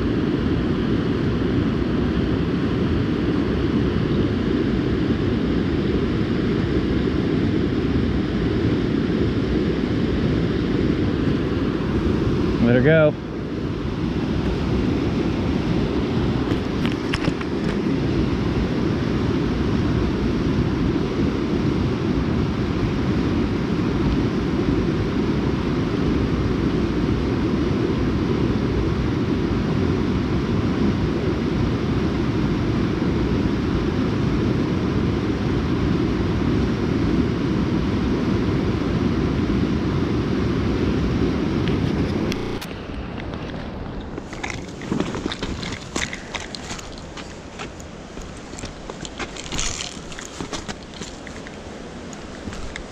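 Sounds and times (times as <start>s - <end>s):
river rapids rushing: 44.2s - 52.9s.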